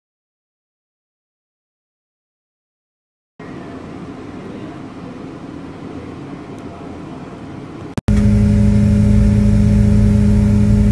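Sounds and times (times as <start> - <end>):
low outdoor rumble: 3.4 - 10.9
vehicle engine idling: 8.1 - 10.9.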